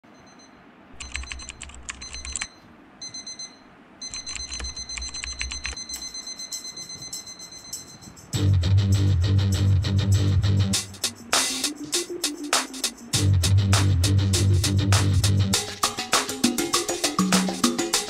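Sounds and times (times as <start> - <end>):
alarm high-pitched beeps: 0.2 - 8.3
loud guitar music: 8.4 - 15.8.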